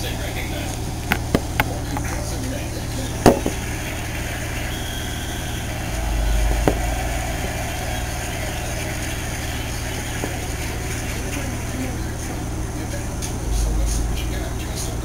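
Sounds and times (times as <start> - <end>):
sharp knock: 3.3 - 3.7, 6.6 - 7.0.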